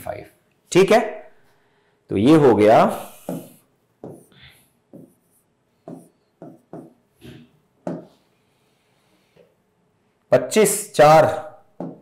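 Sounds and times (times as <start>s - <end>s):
marker scratching on whiteboard: 3.0s - 7.1s.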